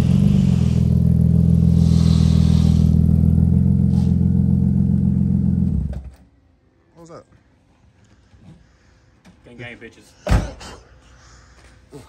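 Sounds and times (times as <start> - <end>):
vehicle engine idling: 0.0 - 6.2.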